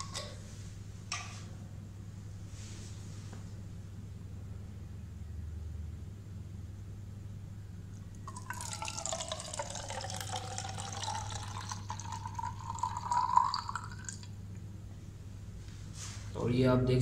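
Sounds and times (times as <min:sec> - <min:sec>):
milk pouring into bottle: 0:08.3 - 0:14.3.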